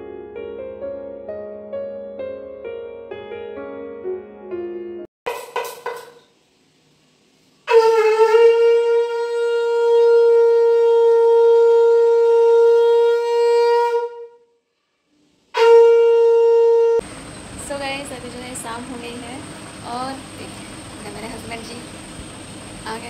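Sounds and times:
conch shell blasts: 7.7 - 14.5, 15.5 - 17.0.

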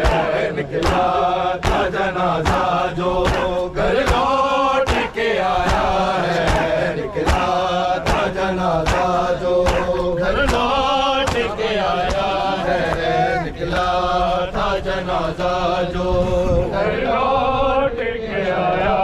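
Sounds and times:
hands slapping chests: 0.0 - 14.0
men singing lament over loudspeakers: 0.0 - 19.0.

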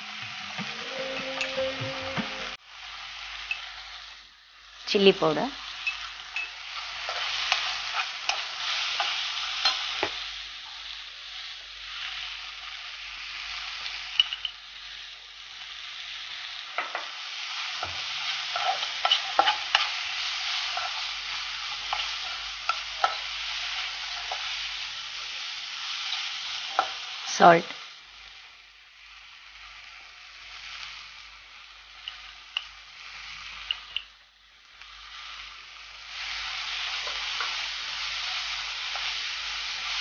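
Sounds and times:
masala sizzling in pan: 0.0 - 40.0
spoon scraping and clicking pan: 14.2 - 14.6, 17.8 - 20.0, 21.8 - 23.3, 33.6 - 34.1.

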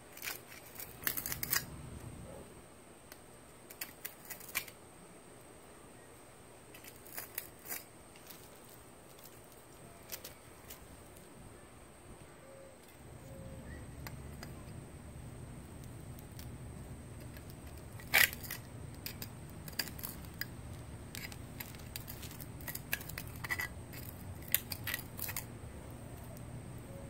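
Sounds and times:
steady low hum: 0.0 - 27.0
hand weeder scraping brick: 17.2 - 20.5, 21.1 - 25.5.

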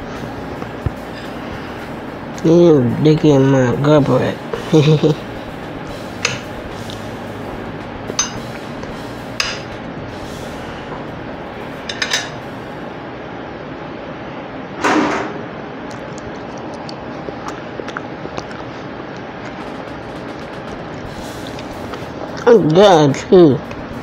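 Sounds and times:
steady hiss: 0.0 - 14.1, 19.6 - 24.0
dishes clicking: 8.1 - 8.5, 11.9 - 12.4
mouth clicks from chewing: 15.9 - 19.7.

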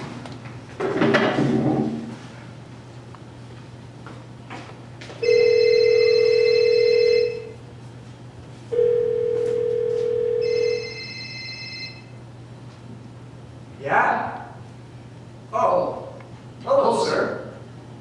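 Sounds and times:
telephone ringing: 5.2 - 7.6, 8.7 - 12.2.

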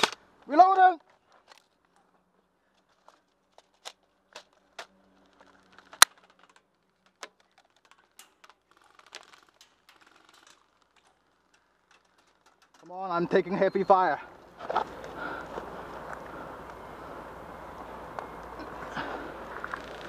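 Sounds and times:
light clatter: 1.0 - 13.0.

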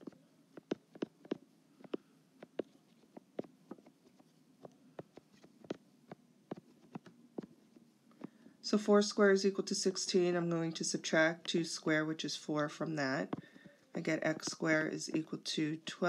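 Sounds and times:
stylus tapping on touchscreen: 14.3 - 15.3.

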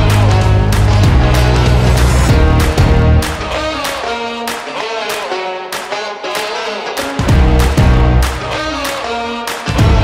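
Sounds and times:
steady drum beat: 0.0 - 3.9, 7.2 - 8.2, 9.8 - 10.0
guitar: 0.0 - 10.0
rock music: 0.0 - 10.0.

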